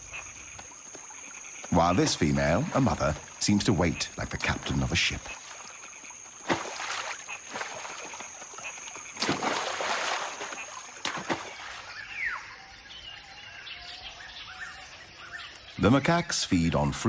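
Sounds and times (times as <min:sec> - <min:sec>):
water splashing: 0:00.0 - 0:12.0.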